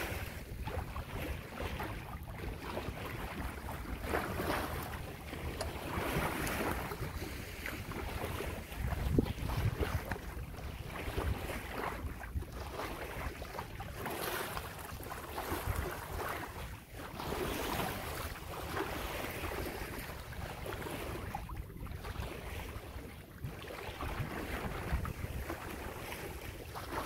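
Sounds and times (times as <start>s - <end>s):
wind buffeting microphone: 0.0s - 14.8s, 17.2s - 27.0s
water splashing along hull: 0.0s - 27.0s.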